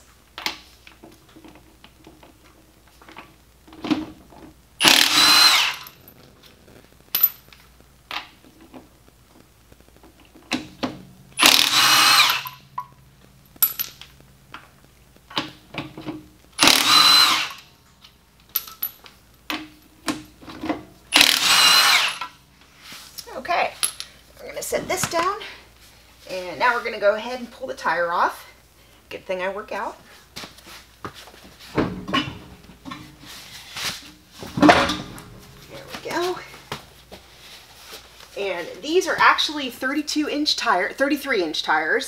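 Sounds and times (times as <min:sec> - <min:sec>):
impact wrench hammering: 0:04.8 - 0:06.0, 0:11.4 - 0:12.9, 0:16.6 - 0:17.6, 0:21.2 - 0:22.3.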